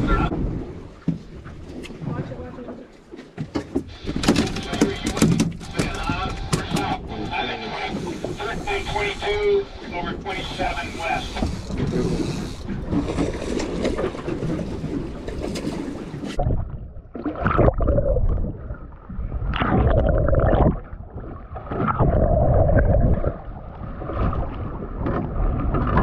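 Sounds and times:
wind: 0.0s - 26.0s
water hissing: 8.0s - 12.6s
rushing gurgling water underwater: 16.0s - 26.0s.

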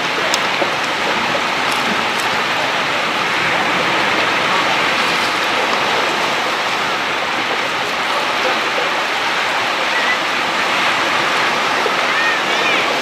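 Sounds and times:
waves breaking over rocks: 0.0s - 13.0s.

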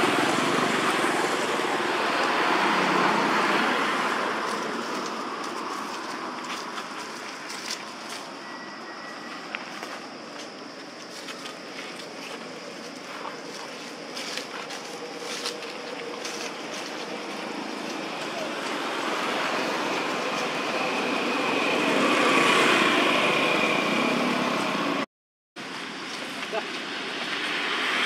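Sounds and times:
distant vehicle passing: 0.0s - 8.4s.

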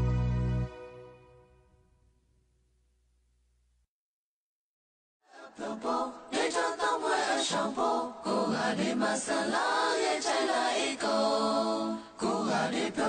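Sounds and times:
voices singing a song: 5.2s - 13.0s.

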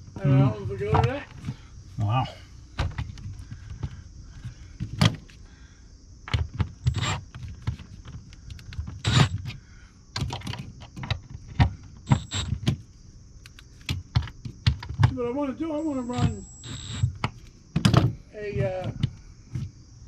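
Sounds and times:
cordless drill driving screws: 6.8s - 7.2s, 9.0s - 9.4s, 12.1s - 12.5s, 16.0s - 17.1s.

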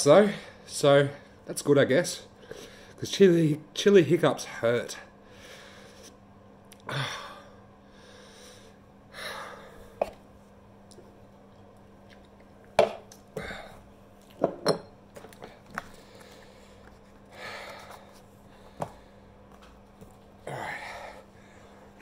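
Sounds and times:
man breathing out heavily: 15.9s - 19.4s, 20.4s - 22.0s.

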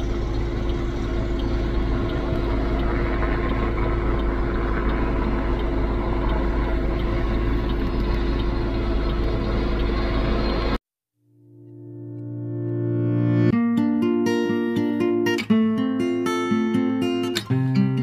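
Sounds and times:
helicopter hovering: 0.0s - 10.8s.

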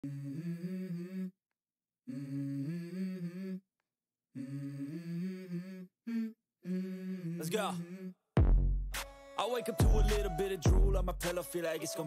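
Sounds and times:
wordless vocal melody: 9.0s - 12.0s.

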